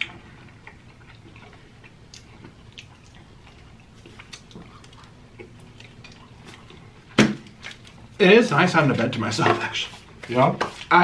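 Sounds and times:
chewing fried chicken: 0:00.0 - 0:08.2.

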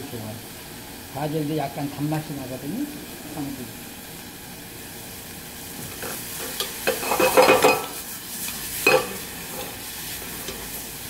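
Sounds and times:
food sizzling in a saucepan: 0:00.0 - 0:11.0
wooden spoon scraping a pan: 0:05.8 - 0:10.8.

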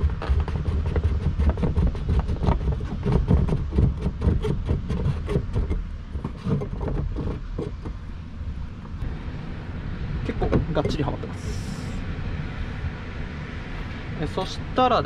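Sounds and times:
pipe knocking and clicking into joints: 0:00.0 - 0:08.0
low rumble: 0:00.0 - 0:15.0.

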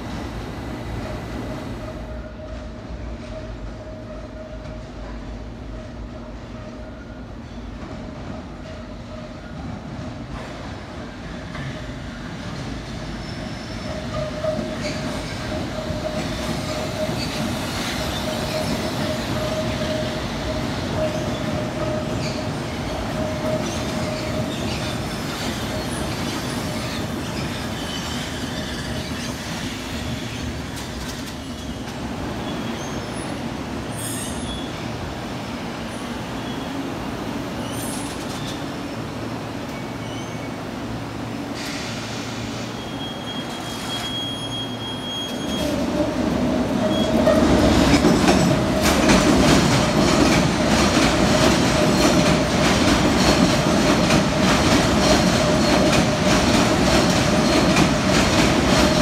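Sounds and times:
train rumbling over rails: 0:00.0 - 0:59.0
high squeal: 0:42.6 - 0:45.8.

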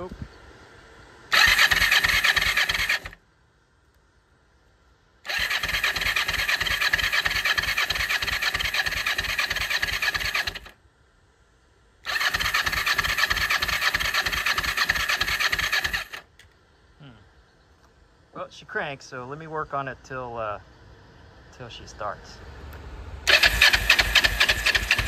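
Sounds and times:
motorcycle engine cranking: 0:01.3 - 0:03.2, 0:05.3 - 0:10.8, 0:12.1 - 0:16.3, 0:23.3 - 0:25.0.

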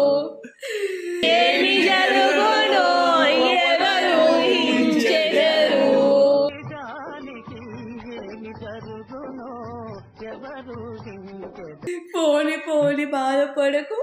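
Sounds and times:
voices singing loudly over music: 0:01.2 - 0:08.8
quiet background music: 0:01.3 - 0:13.8.

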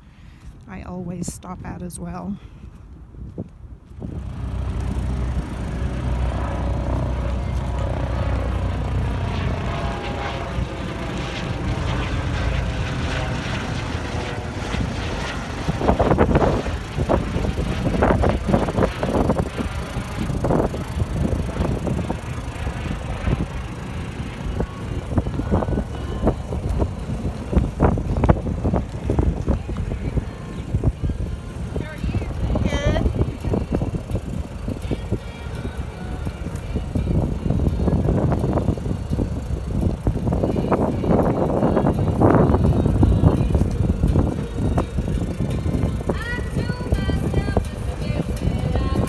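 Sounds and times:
helicopter rotor drone: 0:00.0 - 0:02.7, 0:03.9 - 0:49.0
wind buffeting microphone: 0:00.0 - 0:49.0.

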